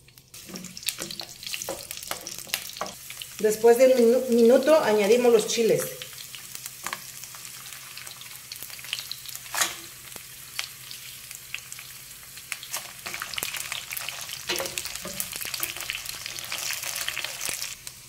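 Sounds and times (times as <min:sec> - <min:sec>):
crackling sizzle of frying: 0:00.0 - 0:18.0
wooden spoon stirring in pan: 0:00.4 - 0:03.4.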